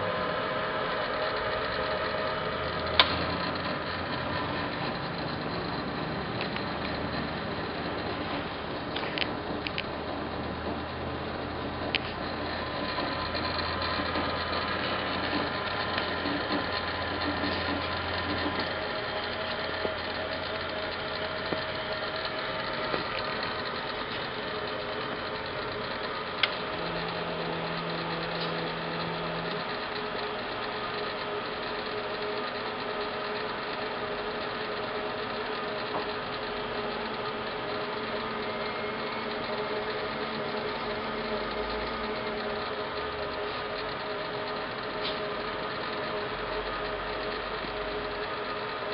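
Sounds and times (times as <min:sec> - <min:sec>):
lathe running hum: 0:00.0 - 0:48.9
sharp click: 0:02.9 - 0:03.4.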